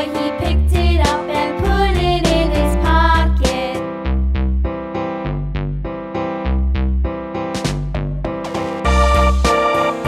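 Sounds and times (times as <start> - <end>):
upbeat children's music: 0.0 - 4.4, 7.5 - 10.0.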